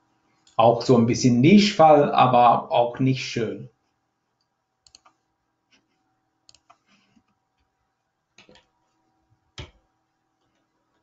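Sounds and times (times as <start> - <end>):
mouse and keyboard clicks: 4.8 - 5.2, 6.5 - 6.8.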